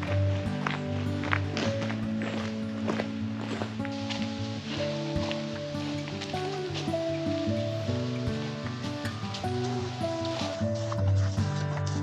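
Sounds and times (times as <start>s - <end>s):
music with held notes: 0.0s - 12.0s.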